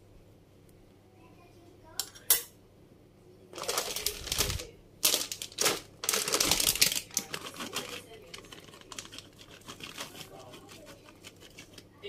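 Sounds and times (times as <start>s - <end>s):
plastic bag crinkling: 3.5s - 12.0s.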